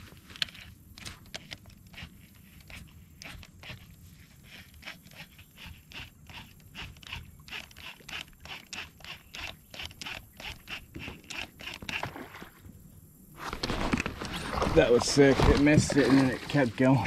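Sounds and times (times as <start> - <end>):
fishing reel ticking: 4.5 - 12.0.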